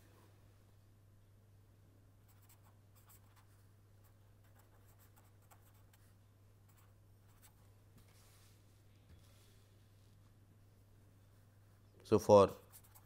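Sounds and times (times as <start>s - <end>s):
marker pen scratching: 2.3s - 3.5s, 4.4s - 6.1s, 12.6s - 13.0s.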